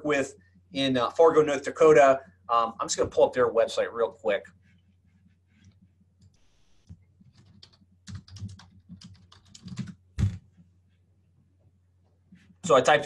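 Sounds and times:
typing on computer keyboard: 0:07.2 - 0:10.4.

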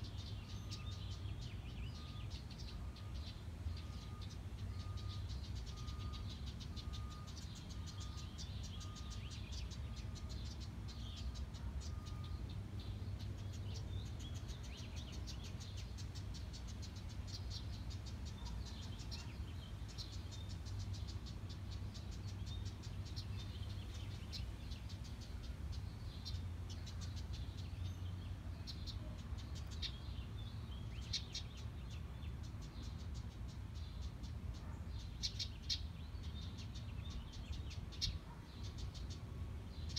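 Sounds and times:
faint beeping: 0:01.8 - 0:13.3
wrens ticking chatter: 0:02.2 - 0:19.1.

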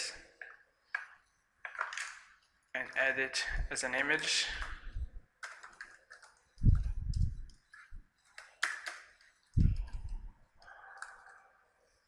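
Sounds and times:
computer keyboard typing: 0:05.4 - 0:11.6.

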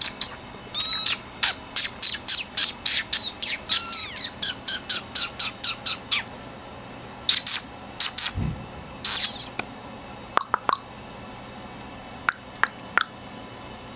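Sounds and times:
kittens mewing: 0:00.0 - 0:06.4.

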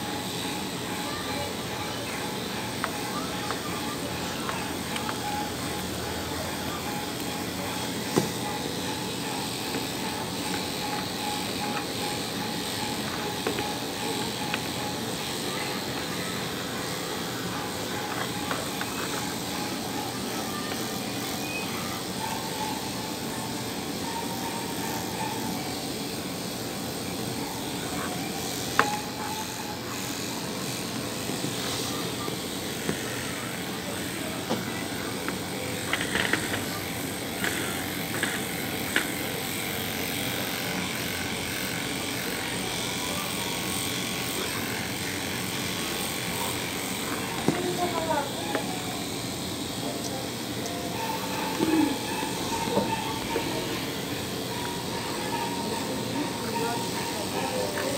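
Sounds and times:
electric grooming equipment whirring: 0:00.0 - 0:57.9.

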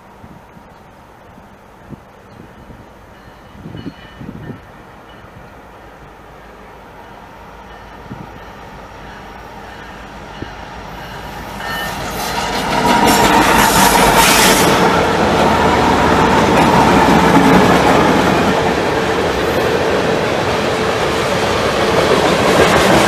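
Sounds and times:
diesel freight train passing: 0:00.0 - 0:23.0
wheels clattering on rails: 0:09.2 - 0:23.0.

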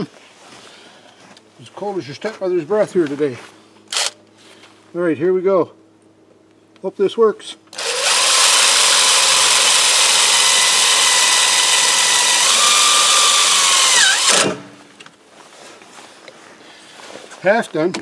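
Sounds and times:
cordless drill motor whine: 0:03.9 - 0:04.2, 0:07.7 - 0:14.7.

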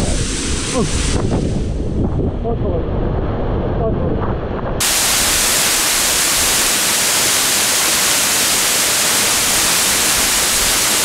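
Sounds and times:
waterfall rushing: 0:04.8 - 0:11.0.

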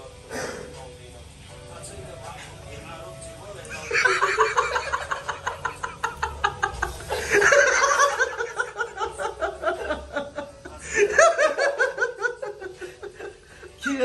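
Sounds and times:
person laughing: 0:03.7 - 0:13.8.

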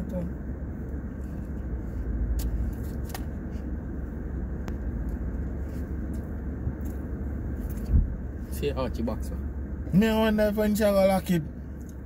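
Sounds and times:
car interior rumble: 0:00.0 - 0:12.0.

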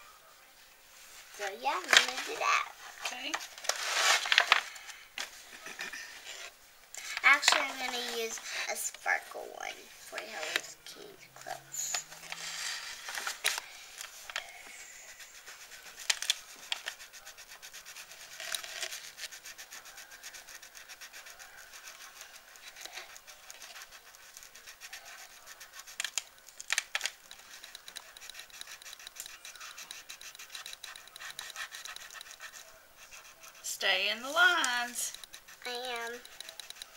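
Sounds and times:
crayon scratching on paper: 0:01.3 - 0:36.9
crayon tapping paper: 0:01.5 - 0:02.7, 0:07.1 - 0:09.0, 0:10.1 - 0:14.5, 0:15.2 - 0:36.9.

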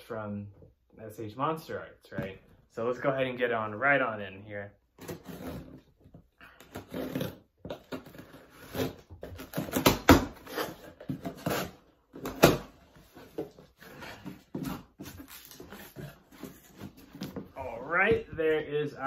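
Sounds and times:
tape and cardboard rustling: 0:04.9 - 0:19.0
blade cutting cardboard box: 0:05.0 - 0:05.9, 0:06.5 - 0:17.5.

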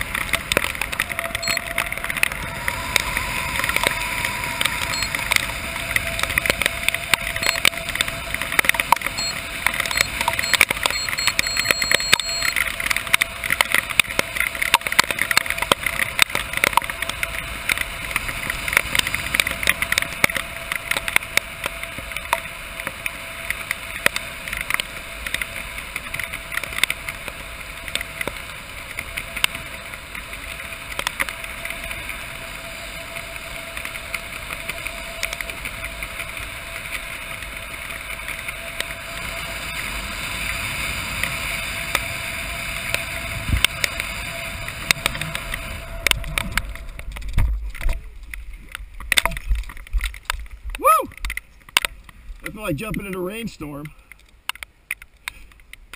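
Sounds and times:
rushing wind: 0:00.0 - 0:52.9
raindrops tapping camera: 0:00.0 - 0:55.9.

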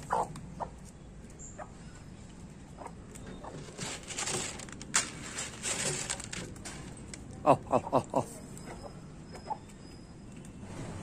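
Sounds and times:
soft hen clucks: 0:00.0 - 0:00.8, 0:02.7 - 0:03.6
hens pecking at leaves on concrete: 0:00.0 - 0:09.0
hens scuffling: 0:02.2 - 0:08.9.

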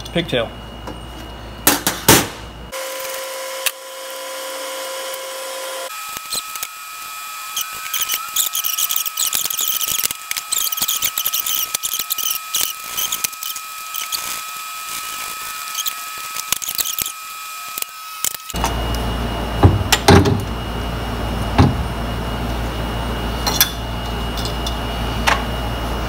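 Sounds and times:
steady low hum: 0:00.0 - 0:02.9, 0:18.5 - 0:26.0.

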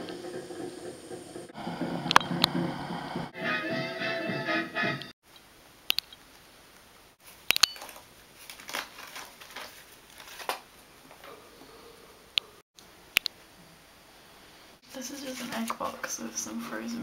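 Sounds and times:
music: 0:01.7 - 0:05.1
sharp clicks: 0:05.3 - 0:06.4, 0:07.4 - 0:07.9, 0:13.1 - 0:13.4
egg box crinkling and rustling: 0:07.2 - 0:11.4.

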